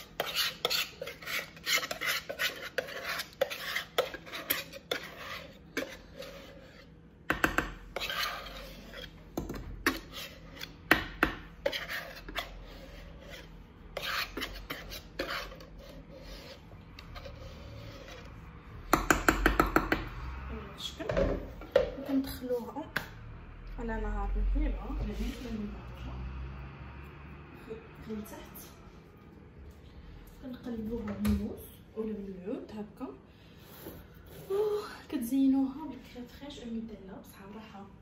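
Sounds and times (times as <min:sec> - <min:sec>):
whisk scraping plastic bowl: 0:00.0 - 0:20.2.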